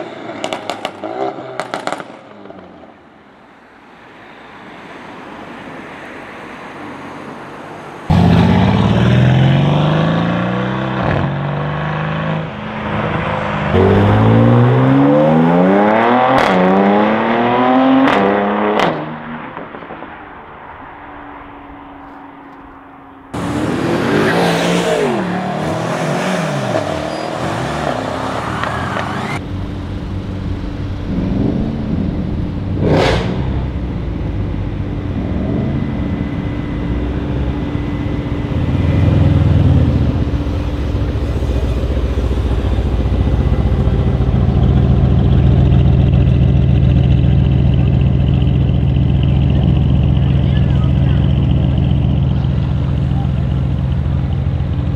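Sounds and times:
deep engine rumble pulling away: 8.1s - 18.2s, 21.5s - 54.9s
car engine revving and accelerating: 8.1s - 20.0s, 23.3s - 54.9s.

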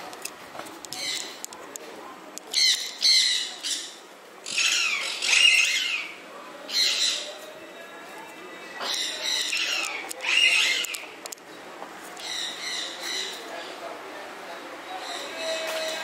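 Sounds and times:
birds squawking: 2.5s - 7.4s, 8.8s - 11.1s.

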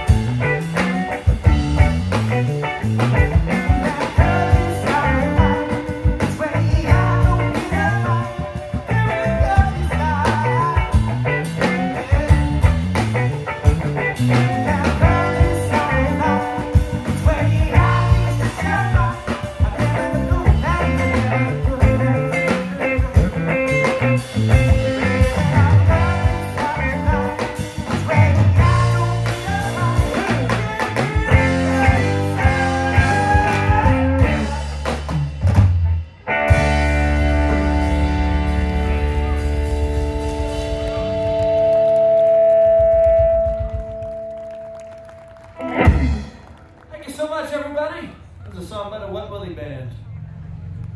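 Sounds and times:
live rock band playing loudly: 0.0s - 46.9s
person singing: 3.5s - 13.1s, 14.1s - 35.0s.

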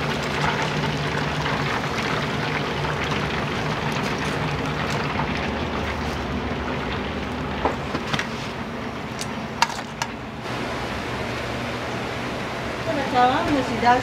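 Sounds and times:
low hum: 10.2s - 13.9s.

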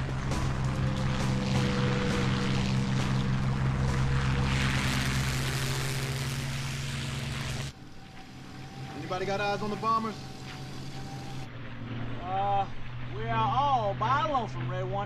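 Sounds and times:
propeller aircraft engines droning: 0.0s - 15.0s.

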